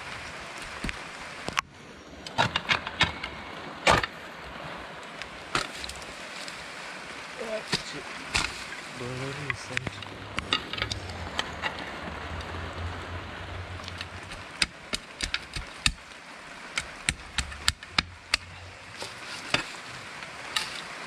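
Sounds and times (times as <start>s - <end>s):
background hiss: 2.7s - 21.0s
shovel chopping and scraping soil: 7.7s - 8.7s, 14.0s - 16.0s, 16.8s - 19.8s, 20.5s - 20.9s.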